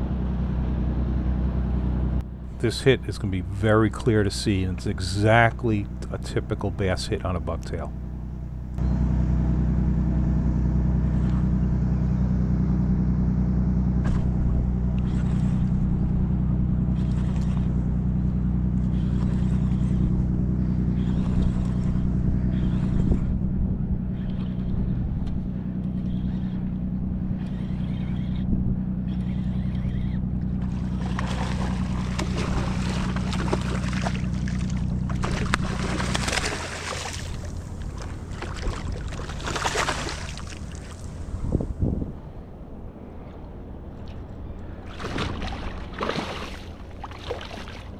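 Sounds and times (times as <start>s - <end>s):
outboard motor idling: 0.0s - 47.9s
fish splashing in water: 30.6s - 41.4s, 44.8s - 47.9s.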